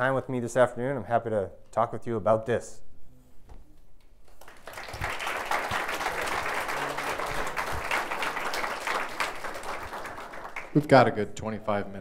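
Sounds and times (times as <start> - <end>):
audience applauding: 4.3 - 11.1.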